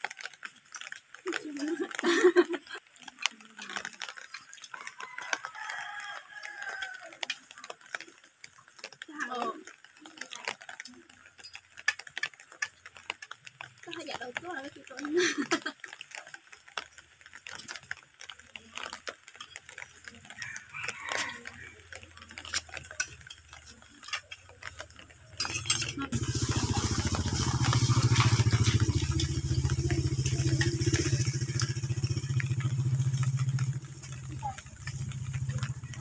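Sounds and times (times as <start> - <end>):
metal spoons clinking in plastic bowl: 22.2 - 31.8.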